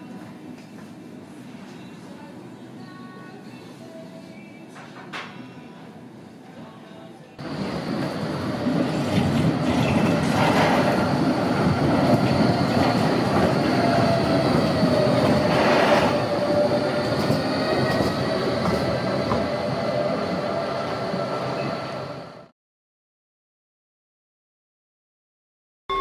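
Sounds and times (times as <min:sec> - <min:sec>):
tram wheels rumbling: 0:07.4 - 0:22.5.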